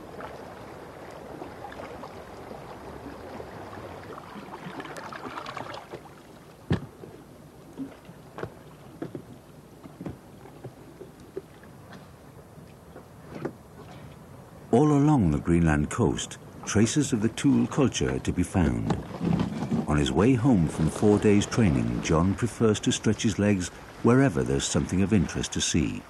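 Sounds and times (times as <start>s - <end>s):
water sloshing around kayak: 0.0s - 14.7s, 16.4s - 26.0s
kayak knocking against rocks: 6.7s - 7.1s, 7.8s - 12.1s, 18.6s - 19.9s.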